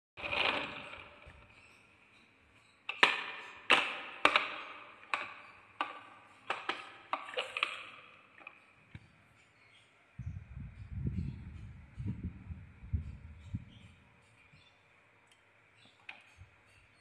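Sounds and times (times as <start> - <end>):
plastic toy truck clacking: 0.2 - 1.6, 2.9 - 8.6.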